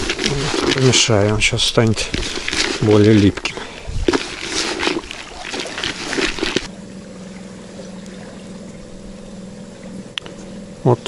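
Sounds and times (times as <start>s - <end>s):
hands squishing damp bait: 0.0s - 6.7s
low hum: 0.0s - 11.0s.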